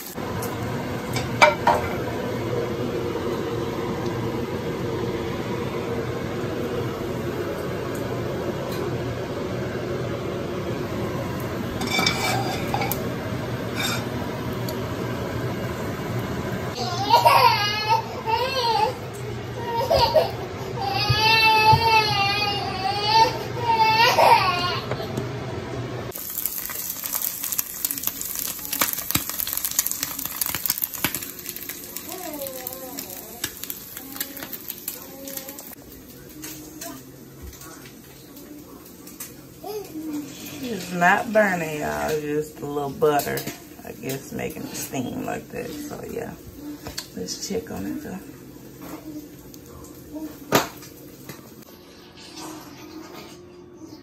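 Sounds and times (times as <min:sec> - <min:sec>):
egg sizzling in a pan: 0:00.0 - 0:17.8, 0:26.1 - 0:41.4
plate and utensil clinking: 0:11.8 - 0:13.0
sharp crackling pops: 0:26.2 - 0:34.6.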